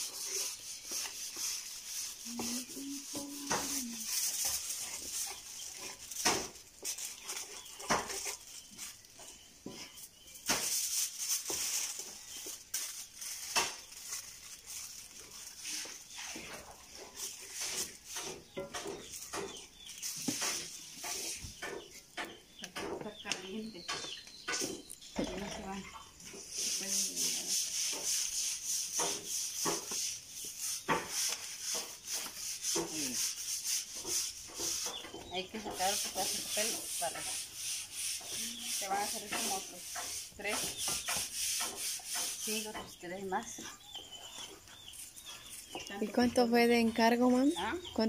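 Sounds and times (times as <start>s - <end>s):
wooden paddle scraping a pan: 0.0s - 43.8s
plastic bag crinkling: 10.6s - 18.2s.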